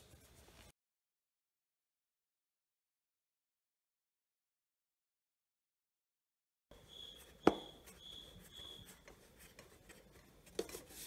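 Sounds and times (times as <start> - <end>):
plastic cover handling rubs: 7.2 - 11.0.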